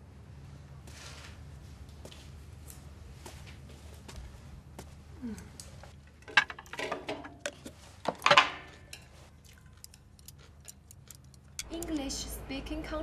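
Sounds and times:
chopsticks clinking on plate and boxes: 8.3s - 12.0s.

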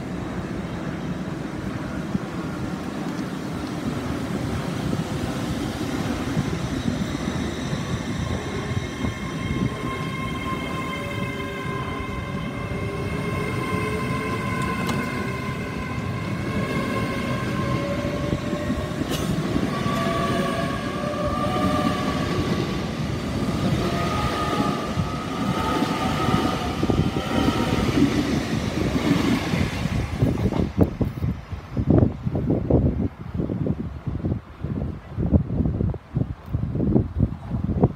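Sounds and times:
wheels rumbling on rail: 0.0s - 37.9s
train traction motors whining: 6.1s - 28.2s.

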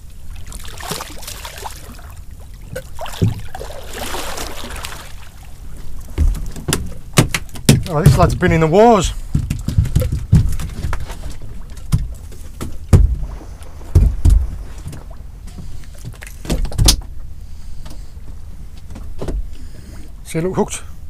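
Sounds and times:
low steady rumble: 0.0s - 21.0s
knocks and thumps on boat: 2.6s - 4.9s, 6.0s - 17.2s, 18.8s - 19.6s.

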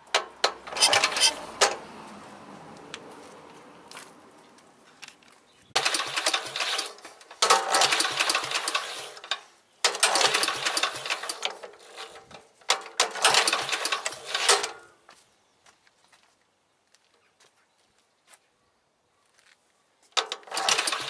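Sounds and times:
mower engine turning over: 0.0s - 1.9s, 5.8s - 14.9s, 20.2s - 21.0s.

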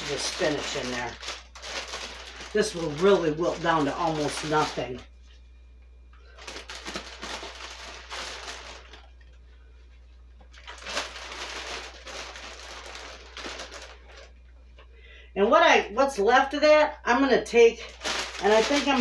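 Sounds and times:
plastic bag crinkling: 0.0s - 5.0s, 6.2s - 9.4s, 10.4s - 14.4s, 17.8s - 19.0s.

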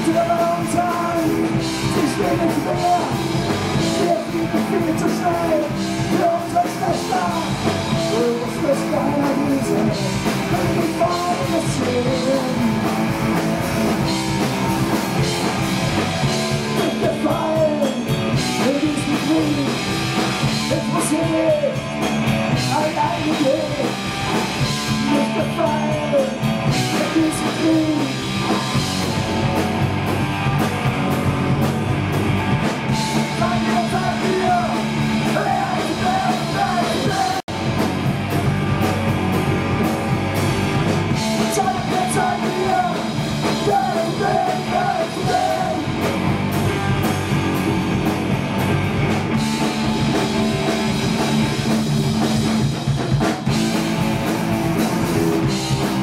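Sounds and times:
person singing: 0.0s - 13.1s, 16.6s - 20.0s, 20.6s - 21.9s, 22.5s - 24.0s, 24.6s - 28.6s, 33.0s - 37.6s, 41.1s - 46.1s
punk band playing live: 0.0s - 56.0s.

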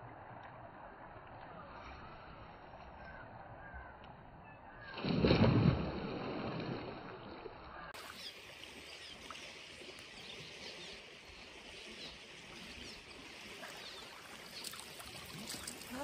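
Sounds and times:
flowing creek water: 5.4s - 16.0s.

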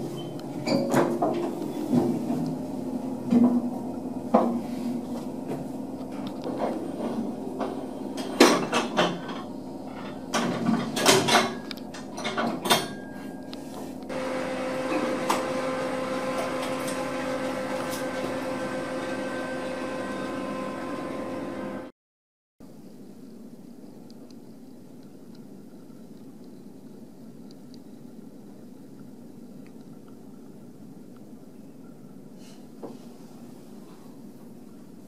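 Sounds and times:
machinery hum with whine: 0.0s - 21.9s.

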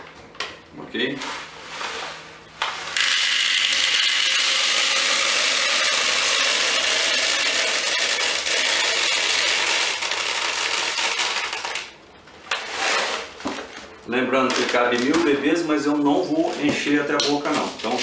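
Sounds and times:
plastic pellets pouring rattling: 3.0s - 11.9s.

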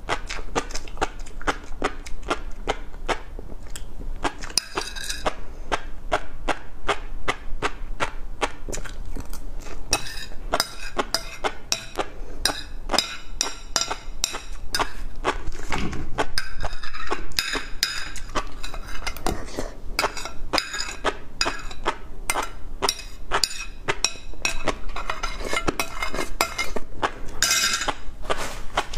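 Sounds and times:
metal spoon scraping ceramic plate: 4.5s - 5.4s, 9.9s - 15.1s, 16.4s - 28.0s.

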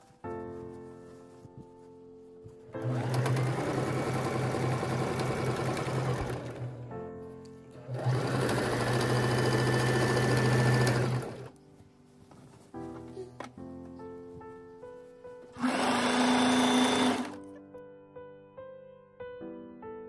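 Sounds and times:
soft background music: 0.0s - 20.0s
sewing machine stitching: 2.8s - 6.8s, 7.7s - 11.5s, 15.6s - 17.4s.

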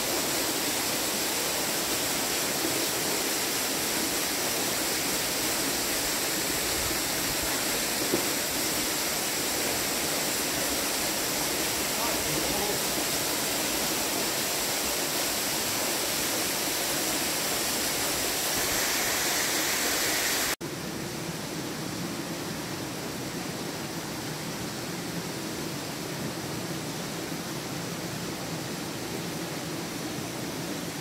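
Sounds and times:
flowing water: 0.0s - 20.6s.

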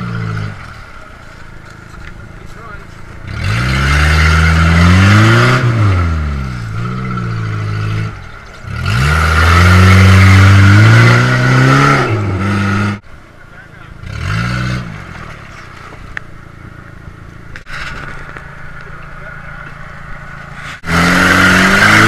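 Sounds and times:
car engine revving hard: 3.2s - 13.0s, 14.0s - 15.4s, 20.6s - 22.0s.

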